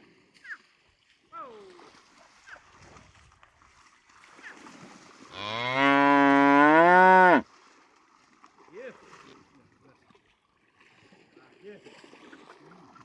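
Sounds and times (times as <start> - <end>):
water buffalo mooing: 5.3 - 7.4.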